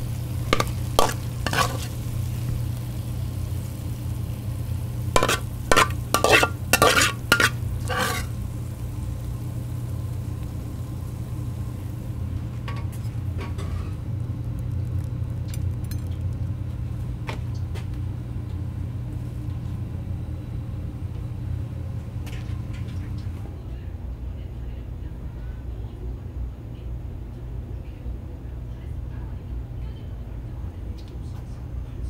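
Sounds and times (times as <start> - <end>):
food sizzling: 0.0 - 17.8
burner low rumble: 0.0 - 32.0
metal ladle scraping wok: 0.5 - 2.0, 5.2 - 8.4.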